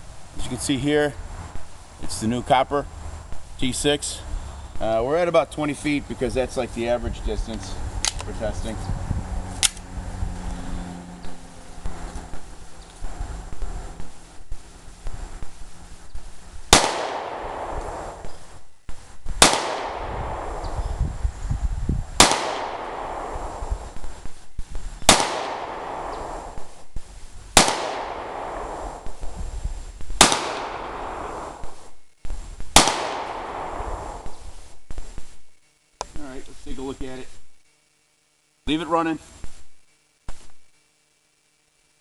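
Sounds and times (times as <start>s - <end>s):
pistol shots: 16.7s - 18.3s, 19.4s - 20.8s, 22.2s - 23.6s, 25.0s - 26.7s, 27.6s - 29.3s, 30.2s - 31.8s, 32.7s - 34.4s.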